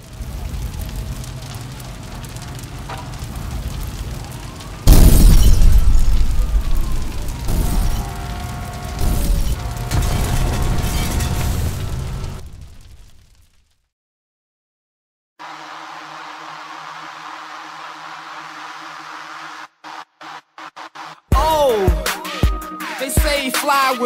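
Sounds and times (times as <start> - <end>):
low rumble: 0.0 - 10.8
loud explosion boom: 4.8 - 13.4.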